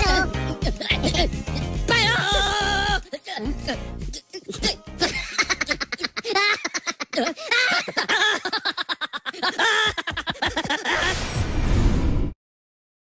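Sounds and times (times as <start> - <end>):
people laughing and giggling: 5.0 - 11.0.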